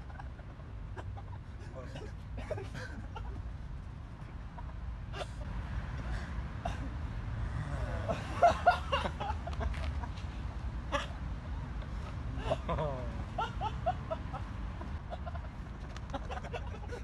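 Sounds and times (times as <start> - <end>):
voices and laughter: 0.0 - 3.6, 7.9 - 17.0.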